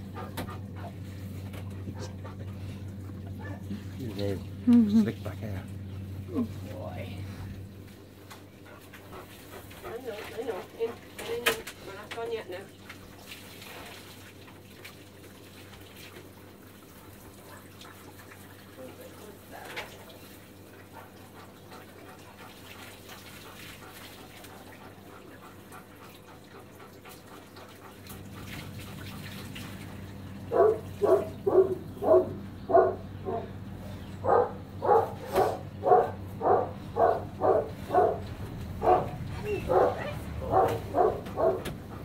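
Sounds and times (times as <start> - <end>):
dog barking loudly: 30.5 - 33.6, 34.2 - 41.7.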